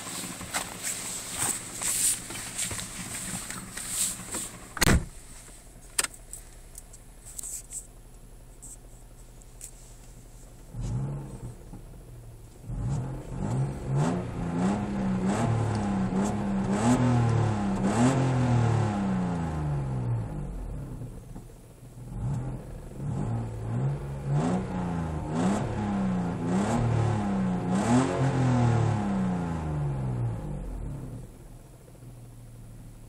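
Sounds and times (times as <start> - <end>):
car engine starting: 0.0 - 33.0
car engine revving: 10.6 - 31.6.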